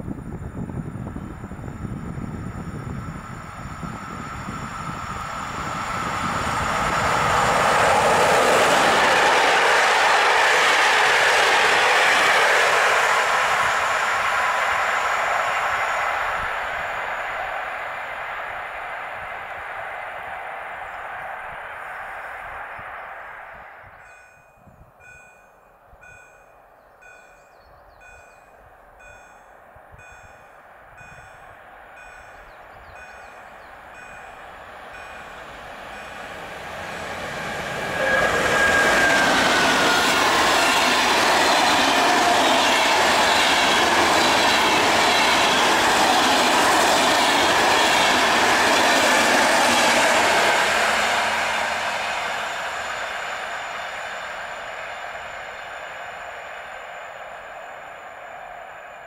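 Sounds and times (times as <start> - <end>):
train passing at speed: 0.0 - 59.0
level crossing warning bell: 24.0 - 51.1.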